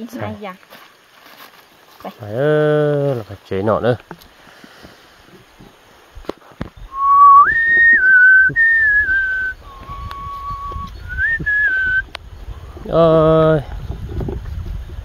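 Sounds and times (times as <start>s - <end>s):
wind rumble on microphone: 5.6s - 15.0s
person whistling slow tune: 6.9s - 12.1s.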